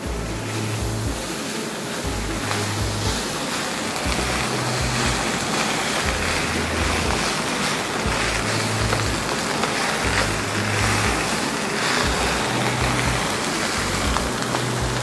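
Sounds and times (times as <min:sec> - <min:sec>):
low bass notes: 0:00.0 - 0:01.3, 0:02.0 - 0:03.3, 0:04.0 - 0:07.4, 0:08.0 - 0:09.4, 0:10.0 - 0:11.4, 0:12.0 - 0:15.0
rice sizzling in a pan: 0:00.0 - 0:15.0
spatula stirring: 0:00.1 - 0:15.0.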